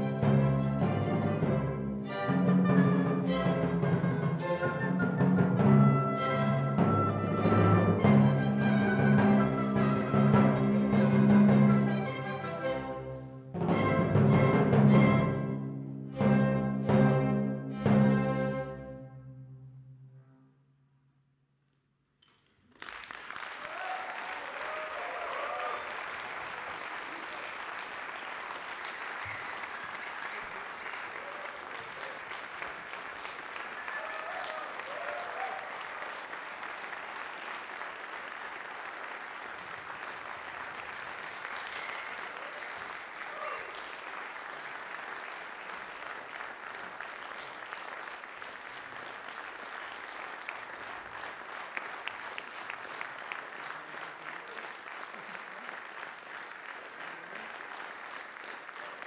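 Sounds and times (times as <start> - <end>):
audience applauding: 4.4 - 12.9, 22.2 - 59.0
voices cheering: 23.5 - 27.8, 28.9 - 32.7, 33.4 - 36.4, 41.6 - 44.1.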